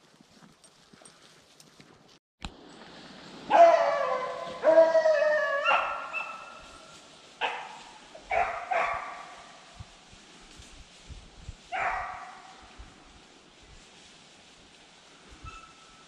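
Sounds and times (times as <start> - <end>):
hounds baying: 3.5 - 9.5, 11.7 - 12.6.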